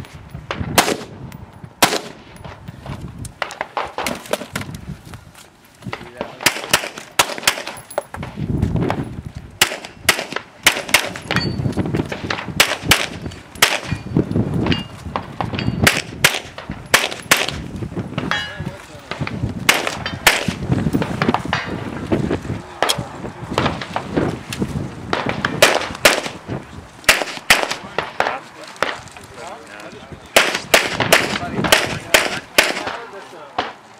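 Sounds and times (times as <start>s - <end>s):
pistol shots: 0.7s - 1.2s, 1.8s - 2.5s, 6.1s - 7.9s, 9.6s - 11.5s, 12.1s - 14.1s, 15.4s - 17.6s, 19.1s - 20.6s, 25.1s - 26.4s, 27.0s - 29.0s, 30.3s - 33.8s.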